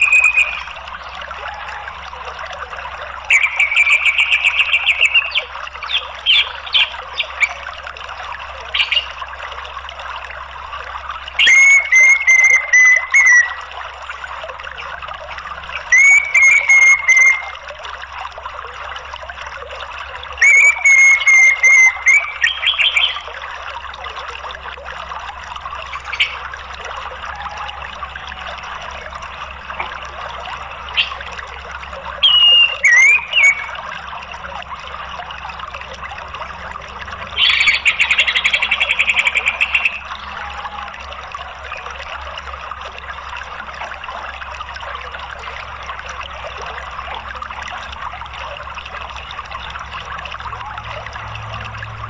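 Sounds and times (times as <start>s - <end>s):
thrush chattering calls: 0.0s - 2.0s, 3.3s - 7.7s, 11.4s - 13.6s, 15.7s - 17.6s, 20.4s - 23.4s, 25.8s - 34.0s, 37.2s - 40.9s
rushing water: 0.0s - 52.0s.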